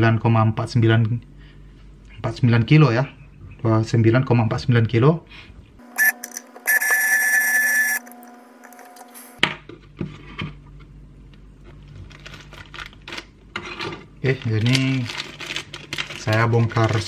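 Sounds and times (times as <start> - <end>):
loud electronic buzzing tone: 5.8 - 9.4
hands handling wires and parts: 14.2 - 17.0.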